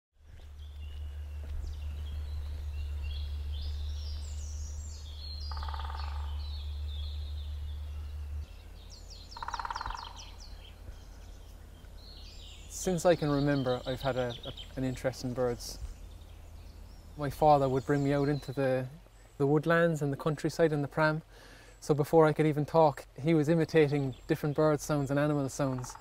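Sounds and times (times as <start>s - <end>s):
low rumble: 0.2s - 18.2s
birds singing and chirping: 0.2s - 26.0s
woodpecker drumming: 0.3s - 19.2s, 23.4s - 26.0s.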